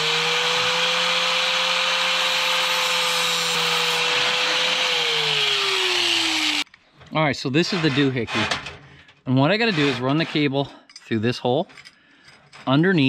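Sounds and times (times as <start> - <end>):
rotary tool cutting steel cable: 0.0 - 6.7.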